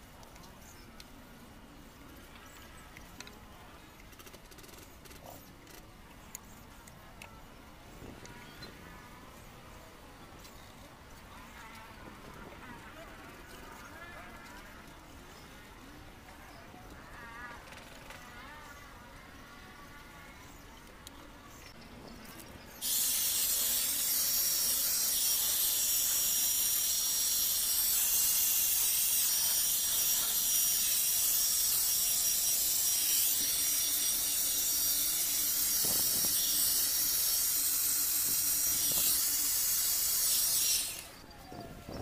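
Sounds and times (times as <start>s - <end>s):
electric paint spray gun hissing: 22.8s - 41.2s.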